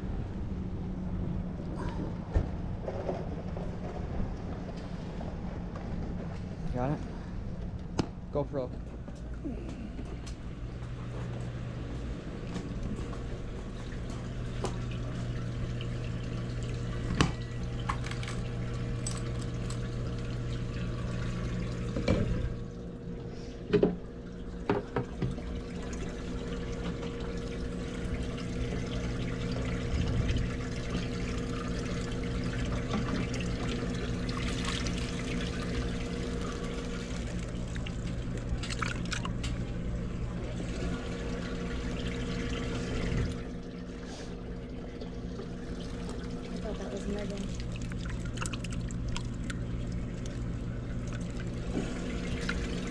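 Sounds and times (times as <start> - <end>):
steady electrical hum: 0.0 - 52.9
water bubbling and trickling: 12.9 - 23.1, 24.1 - 52.9
water sloshing: 23.9 - 43.7, 44.4 - 52.9.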